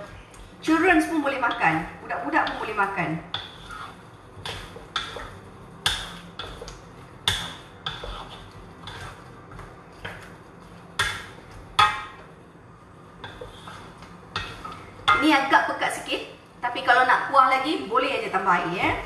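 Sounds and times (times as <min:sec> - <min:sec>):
wooden spatula knocking wok: 0:01.0 - 0:12.3, 0:13.2 - 0:15.4.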